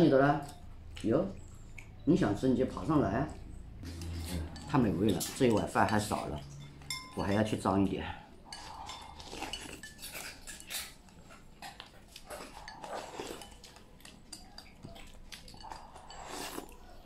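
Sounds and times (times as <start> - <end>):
bowl clinking: 4.0 - 7.7
person slurping soup: 8.4 - 11.0, 15.5 - 16.9.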